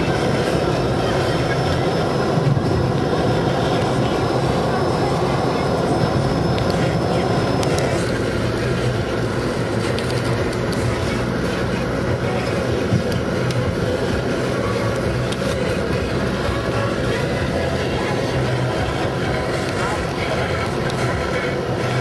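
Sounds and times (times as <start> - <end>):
low engine hum: 0.0 - 22.0
tyre and road noise: 0.0 - 22.0.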